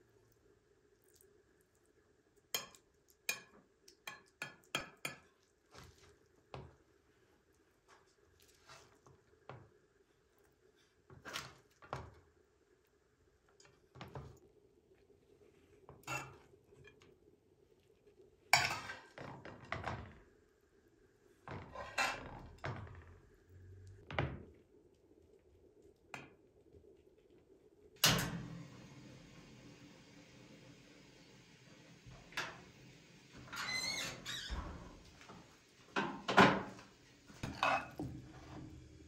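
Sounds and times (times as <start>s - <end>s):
oven door clunk: 28.0s - 28.7s
metal spoon clinking and scraping: 37.4s - 38.0s.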